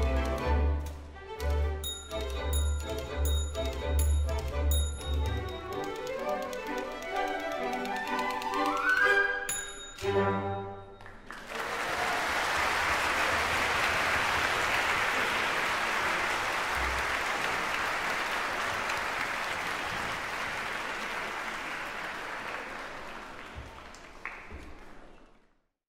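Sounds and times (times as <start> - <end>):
audience applauding: 10.9 - 25.6.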